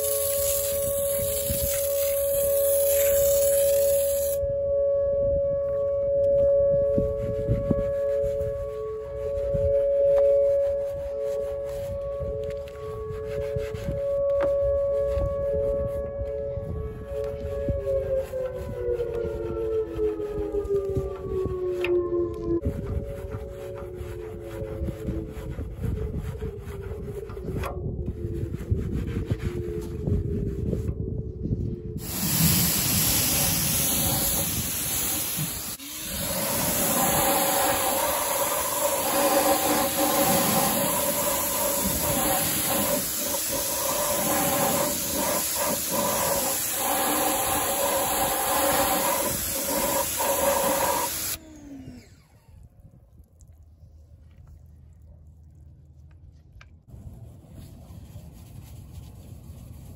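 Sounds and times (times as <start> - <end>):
brush scrubbing exhaust tip: 0.0 - 4.4, 6.3 - 20.1, 32.0 - 51.4
water jet hissing: 0.0 - 4.4, 32.0 - 51.4
pressure washer motor whine: 0.0 - 25.3, 31.6 - 52.7.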